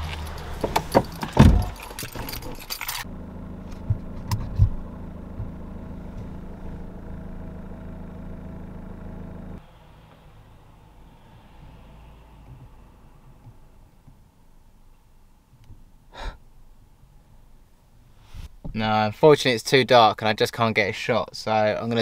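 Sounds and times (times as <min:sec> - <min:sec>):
keys clattering: 0:00.0 - 0:03.1
van engine idling: 0:00.0 - 0:14.1
heavy thump: 0:00.6 - 0:02.3, 0:03.8 - 0:06.4.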